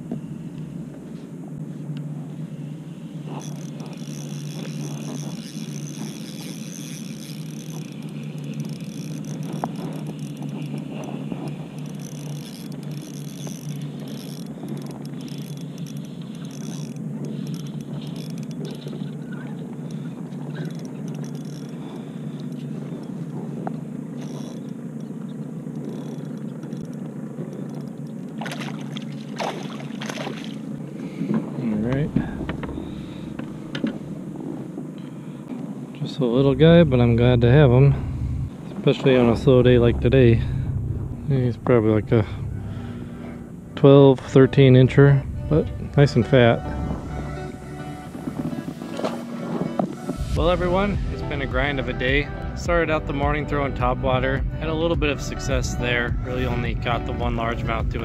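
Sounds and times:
steady low rumble: 0:00.0 - 0:29.4, 0:30.1 - 0:58.0
fish splashing: 0:03.0 - 0:31.2
fishing reel winding: 0:03.3 - 0:23.4, 0:24.1 - 0:28.4.

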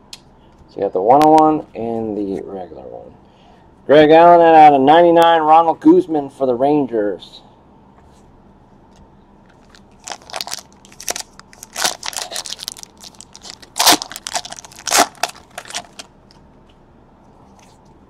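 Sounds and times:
foil pack tearing and crinkling: 0:09.6 - 0:16.1.

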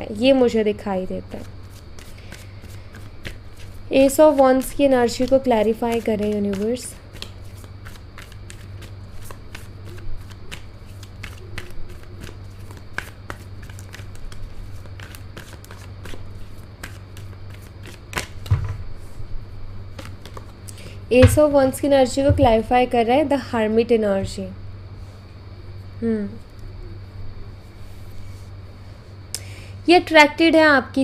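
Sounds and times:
low steady hum: 0:00.0 - 0:31.0
cards being shuffled: 0:01.3 - 0:18.8, 0:19.9 - 0:21.7.

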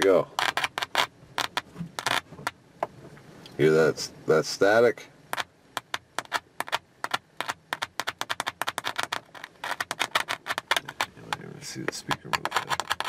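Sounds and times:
speaker crackling with clicks and pops: 0:05.3 - 0:13.0.

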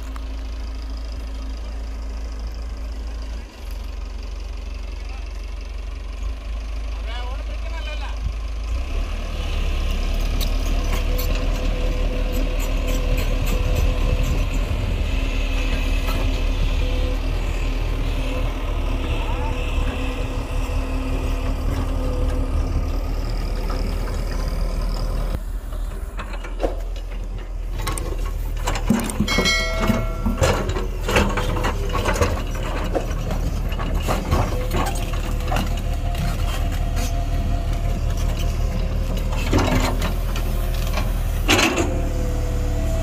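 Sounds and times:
excavator diesel engine running: 0:00.0 - 0:43.0.

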